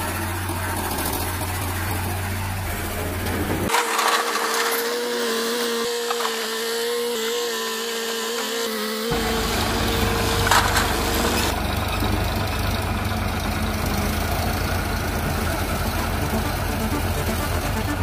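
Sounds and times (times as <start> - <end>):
tractor diesel engine rumble: 0.0 - 3.7, 9.1 - 18.0
excavator engine whine: 0.0 - 6.7, 9.1 - 18.0.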